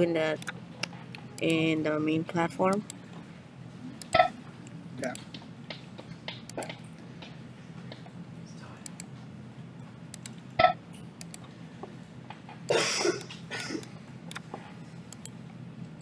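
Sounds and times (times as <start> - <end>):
low room hum: 0.0 - 16.0
computer mouse clicks: 10.1 - 10.4, 11.2 - 11.5, 13.8 - 14.5, 15.1 - 15.4.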